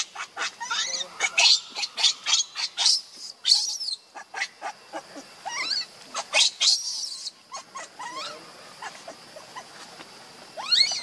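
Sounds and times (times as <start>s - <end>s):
baby monkey squealing: 0.0s - 9.7s, 10.6s - 11.0s.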